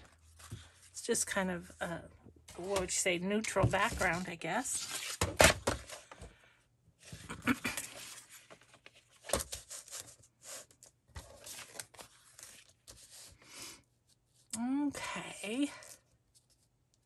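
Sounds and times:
paper rustling: 7.1s - 13.3s.

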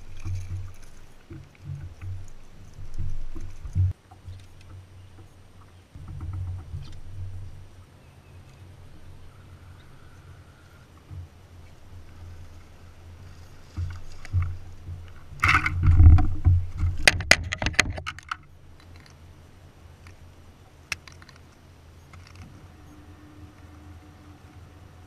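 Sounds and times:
faint handling sounds: 0.0s - 7.7s, 8.4s - 19.2s
low hum: 0.0s - 25.0s.

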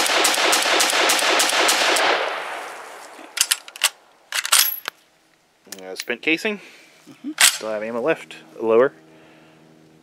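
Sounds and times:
rifle shots in rapid string: 0.0s - 2.6s.

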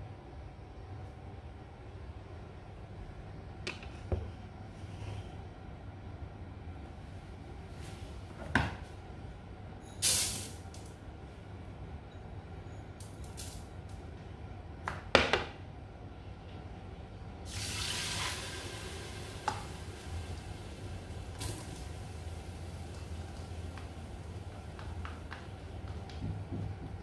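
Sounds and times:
low steady hum: 0.0s - 27.0s
kitchen tap running: 17.5s - 26.2s.

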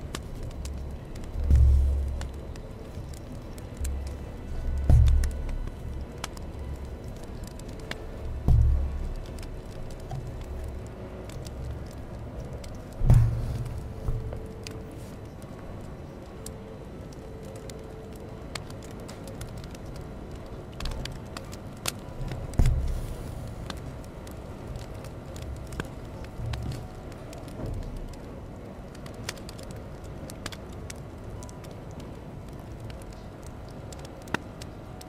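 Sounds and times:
thumps: 13.0s - 14.4s.

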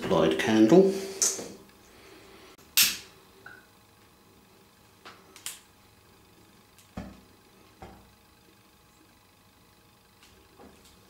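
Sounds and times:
sharp snap: 2.8s - 3.1s.

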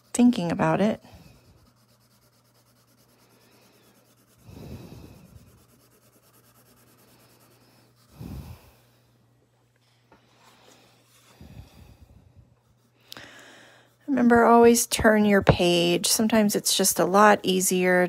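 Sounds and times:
pencil scratching on paper: 0.0s - 8.5s, 13.8s - 16.0s.

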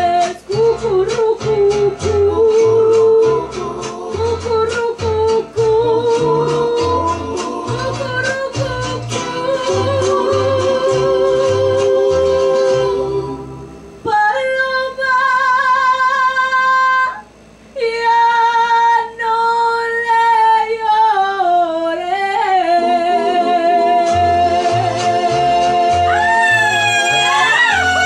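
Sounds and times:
woman singing into microphone: 0.0s - 13.4s, 14.0s - 17.2s, 17.8s - 26.3s
backing music: 0.0s - 14.0s, 22.7s - 28.0s.

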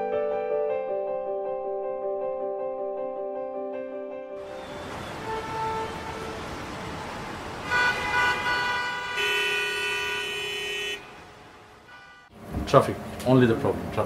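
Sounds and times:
car horns honking: 4.4s - 12.4s
traffic hum: 4.4s - 14.0s.

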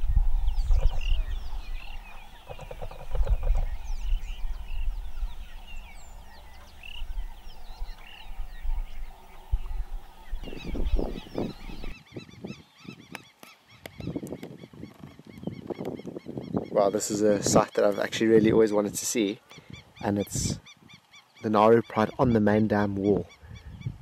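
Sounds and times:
birds chirping: 0.0s - 24.0s.

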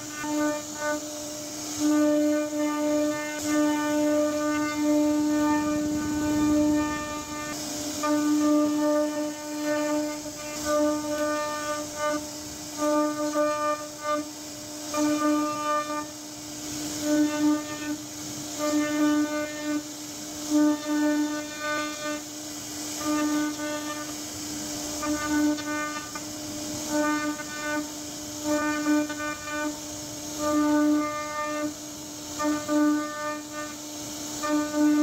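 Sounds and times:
hiss of wood cutting: 0.0s - 35.0s
router spindle high-pitched whine: 2.4s - 7.6s.

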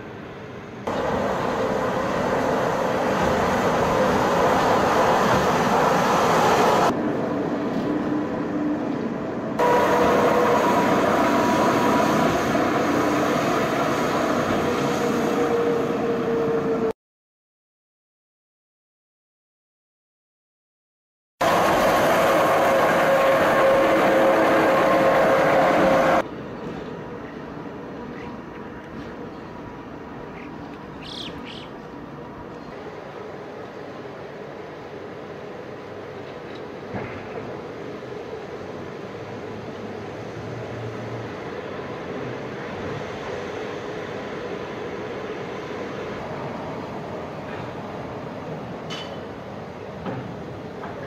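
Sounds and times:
cog railcar rumble and clatter: 0.0s - 16.9s, 21.4s - 51.0s
outdoor background: 0.0s - 17.0s, 21.4s - 51.0s
bird chirps: 30.3s - 31.8s.

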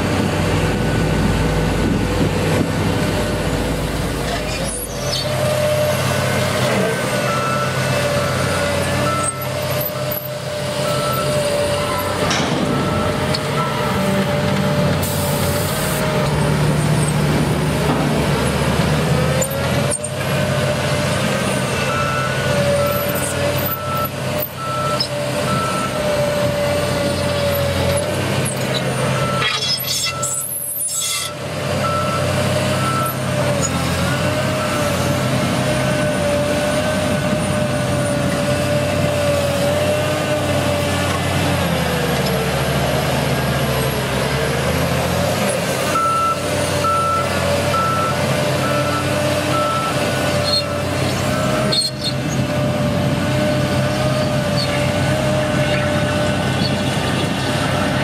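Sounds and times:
diesel bulldozer engine running: 0.0s - 58.0s
reversing alarm beeping: 7.2s - 14.0s, 21.8s - 26.1s, 29.0s - 33.3s, 45.9s - 52.0s.

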